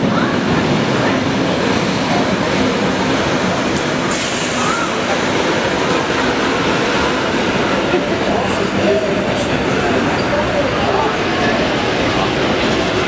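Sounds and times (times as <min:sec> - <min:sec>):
train wheels rumbling: 0:00.0 - 0:13.0
burst of hiss: 0:04.1 - 0:04.9.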